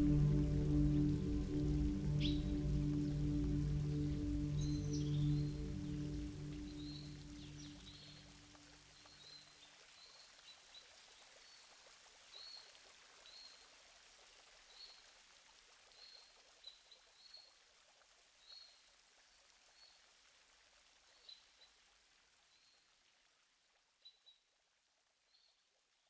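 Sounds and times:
bird chirping: 0.0s - 8.3s
soft steady hiss: 0.0s - 26.0s.

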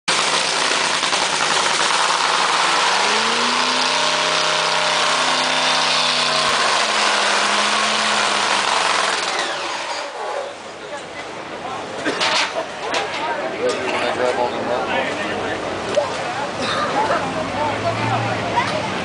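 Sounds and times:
drag racing engine revving: 0.1s - 10.6s.

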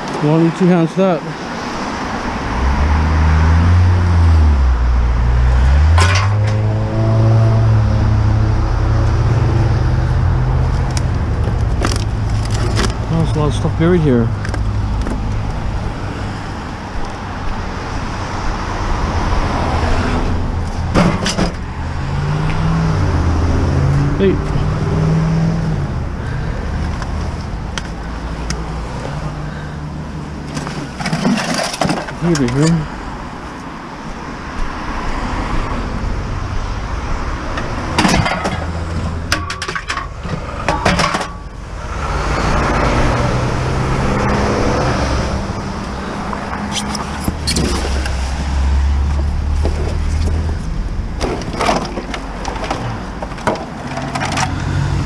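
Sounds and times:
heavy vehicle engine passing: 0.0s - 31.0s, 40.1s - 51.2s, 52.2s - 55.0s
traffic on a wet road: 0.0s - 55.0s.

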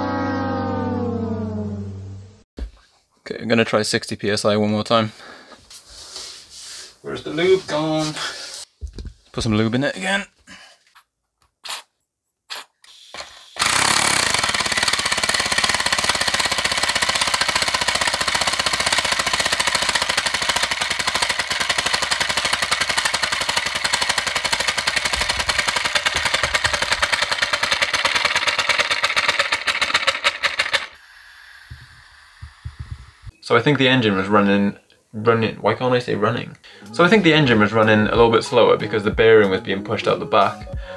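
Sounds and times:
air engine hissing exhaust puffs: 31.4s - 33.4s.

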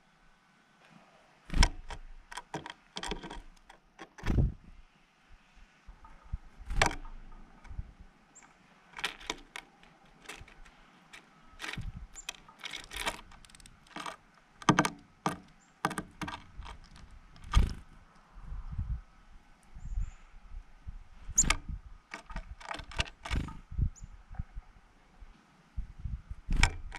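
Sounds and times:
wings fluttering: 3.0s - 4.7s, 15.3s - 18.0s, 21.3s - 23.7s
bird tapping among seeds: 8.4s - 17.9s.

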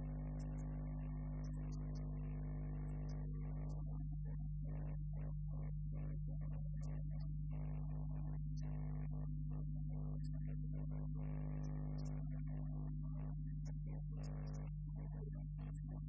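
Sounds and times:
electrical mains hum: 0.0s - 16.0s.

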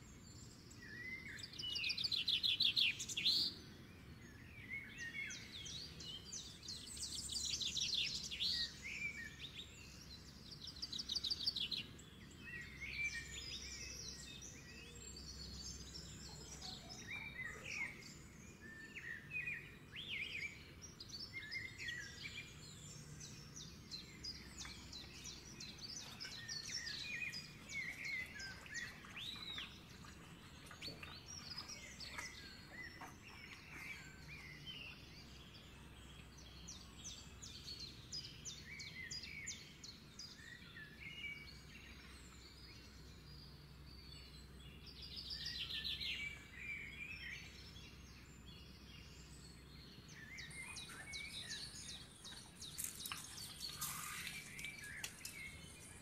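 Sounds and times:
birds chirping and calling: 21.4s - 35.6s, 49.9s - 56.0s.

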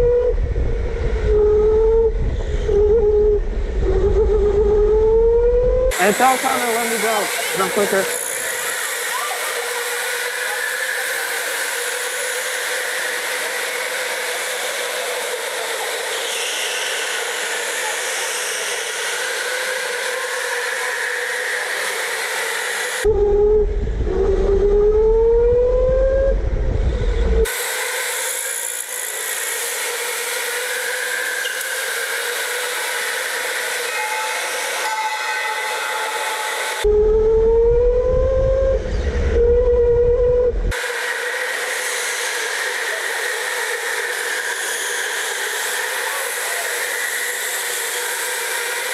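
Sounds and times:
electric kart motors whining: 5.9s - 23.1s, 28.8s - 36.9s, 40.7s - 48.9s.

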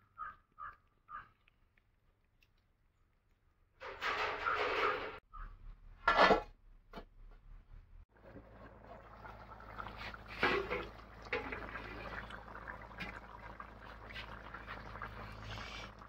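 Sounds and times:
thick curry bubbling at a boil: 8.1s - 16.0s.

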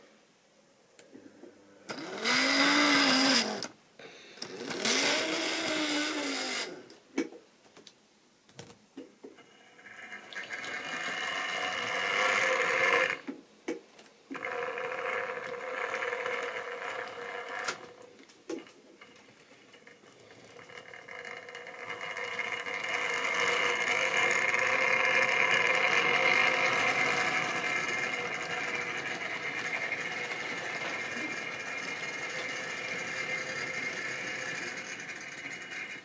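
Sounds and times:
model train wheels on track: 1.9s - 3.7s, 4.4s - 6.8s, 9.6s - 13.3s, 14.3s - 36.0s
small electric motor whirring: 1.9s - 3.7s, 4.4s - 6.9s, 10.5s - 13.2s, 20.2s - 36.0s.

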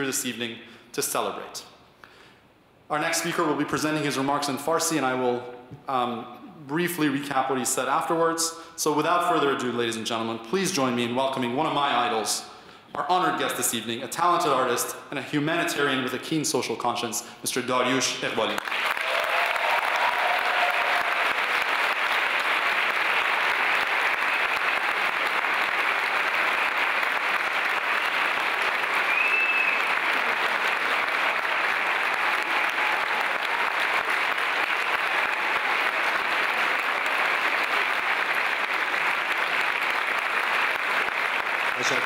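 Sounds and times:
large audience applauding: 18.4s - 42.0s.

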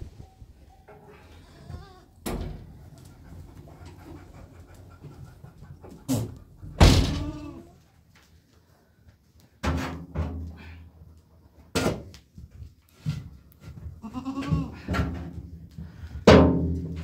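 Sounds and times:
goats bleating: 1.3s - 2.2s, 7.1s - 7.8s, 14.0s - 14.9s.

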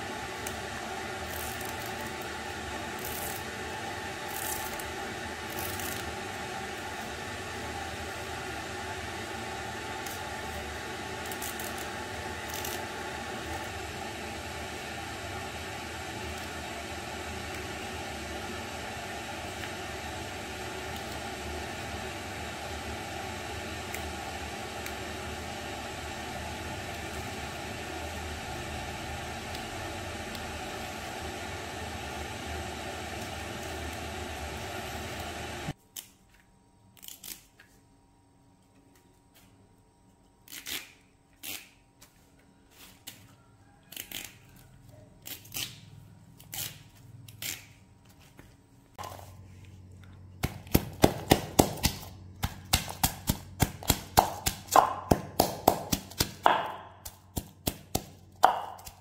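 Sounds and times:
leaves rustling and clicking: 4.2s - 6.2s
wooden pestle pounding in mortar: 50.4s - 59.0s.

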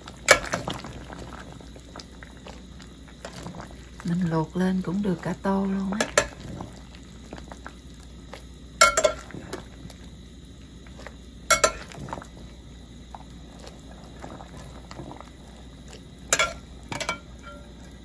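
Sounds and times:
pot of water bubbling: 0.0s - 18.0s
metal skimmer clinking on dishes: 8.8s - 9.2s, 11.5s - 11.9s, 16.3s - 17.7s.

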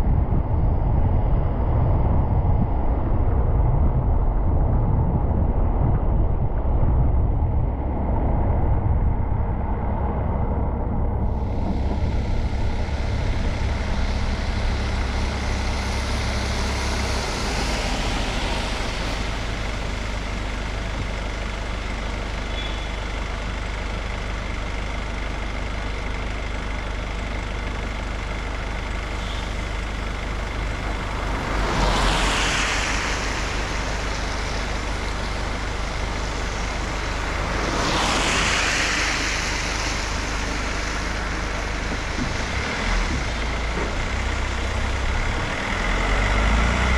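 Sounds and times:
low rumble: 0.0s - 46.9s
tyres hissing on wet road: 11.2s - 46.9s
steady rain: 11.4s - 46.9s.

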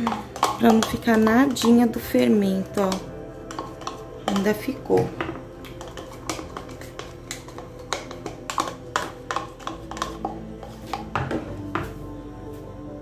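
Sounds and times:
plastic spoon clicking and scraping: 0.0s - 11.9s
background music: 0.0s - 13.0s.

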